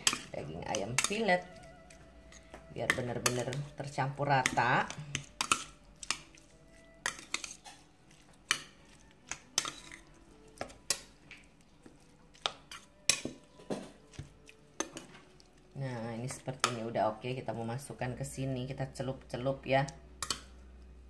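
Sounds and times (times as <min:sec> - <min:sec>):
metal spoon clinking in steel bowl: 0:00.0 - 0:03.8, 0:04.4 - 0:06.3, 0:07.0 - 0:07.8, 0:08.5 - 0:11.1, 0:20.2 - 0:20.5.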